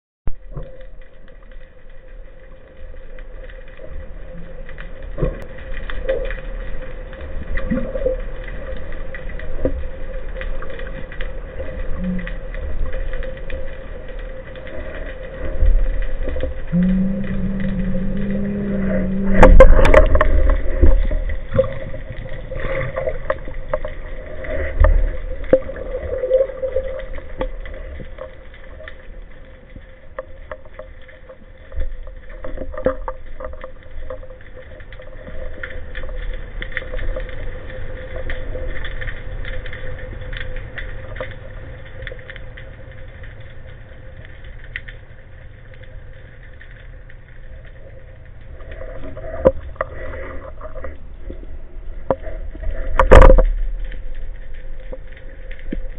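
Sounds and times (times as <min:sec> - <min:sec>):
underwater water rumble: 0:00.3 - 0:55.9
steady hum: 0:08.5 - 0:30.6.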